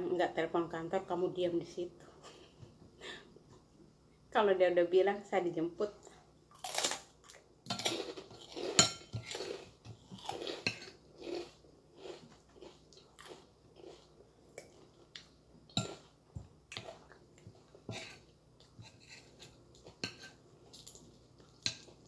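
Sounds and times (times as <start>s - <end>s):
cracker crunching being chewed: 6.5s - 15.3s
metal spoon scraping a plate: 17.9s - 20.4s.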